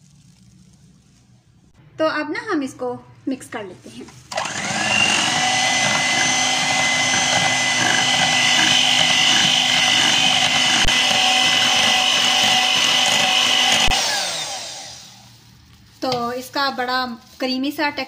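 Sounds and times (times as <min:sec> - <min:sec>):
electric hand mixer whining: 0:04.3 - 0:15.3.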